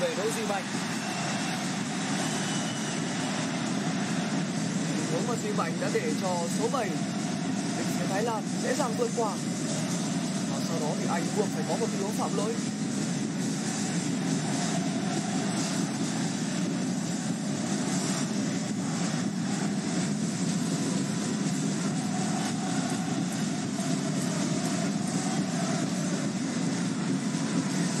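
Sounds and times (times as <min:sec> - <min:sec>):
stadium crowd din: 0:00.0 - 0:28.0.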